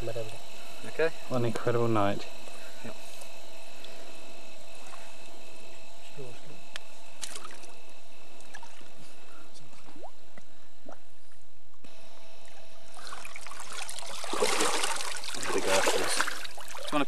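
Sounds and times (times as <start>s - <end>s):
river water splashing: 7.2s - 7.7s, 13.0s - 17.0s.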